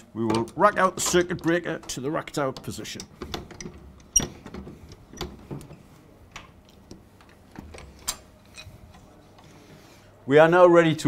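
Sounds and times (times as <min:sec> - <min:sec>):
metallic clicks and clunks: 0:00.2 - 0:09.0.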